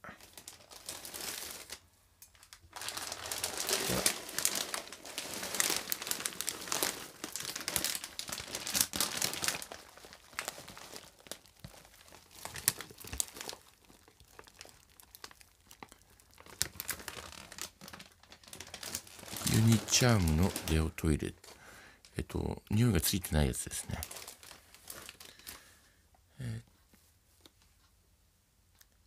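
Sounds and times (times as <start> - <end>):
plastic bag crinkling: 0.0 - 22.2, 23.1 - 25.8.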